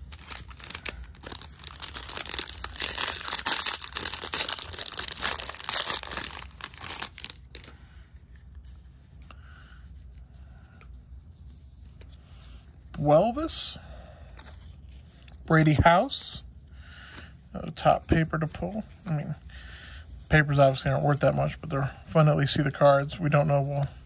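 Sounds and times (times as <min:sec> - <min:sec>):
foil wrapper crinkling and tearing: 0:00.0 - 0:07.7
cards rustling: 0:00.0 - 0:08.9.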